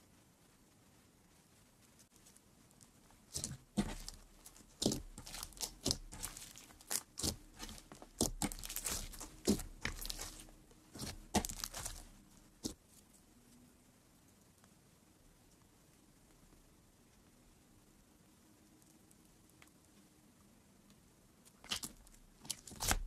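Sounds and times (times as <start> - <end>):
crunchy slime crackling and popping: 3.3 - 12.8, 21.5 - 23.0.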